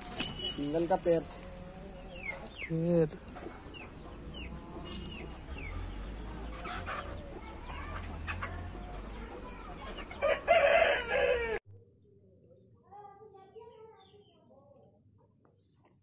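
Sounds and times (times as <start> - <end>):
rooster crowing: 10.0 - 11.6.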